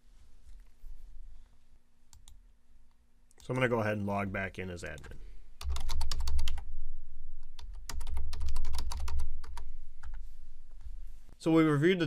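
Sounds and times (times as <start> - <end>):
typing on computer keyboard: 5.6 - 6.6, 7.6 - 9.6.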